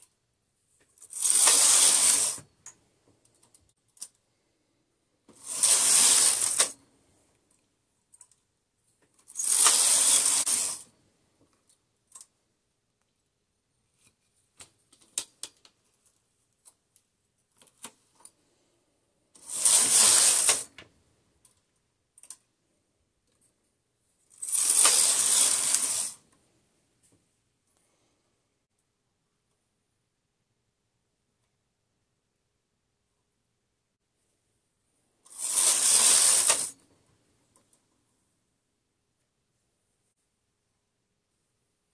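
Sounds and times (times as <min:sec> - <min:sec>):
knitting machine carriage clattering: 0:01.0 - 0:02.4, 0:05.4 - 0:06.8, 0:09.2 - 0:10.8, 0:19.4 - 0:20.8, 0:24.4 - 0:26.2, 0:35.3 - 0:36.8.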